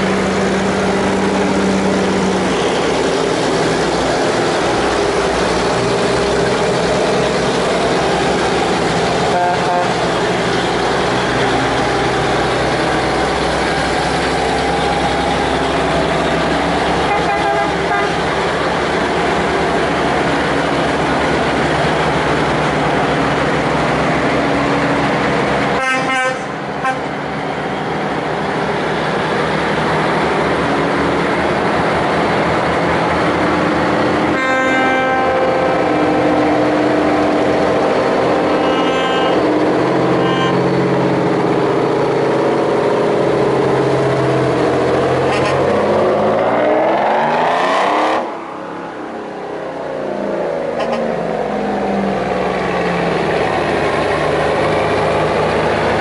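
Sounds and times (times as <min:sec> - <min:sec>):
truck engines driving past: 0:00.0 - 0:56.0
truck horn blasts: 0:09.2 - 0:10.1, 0:17.0 - 0:18.2, 0:25.7 - 0:27.1, 0:34.3 - 0:36.3, 0:38.5 - 0:39.5, 0:40.1 - 0:40.7
engine revving: 0:28.3 - 0:48.6.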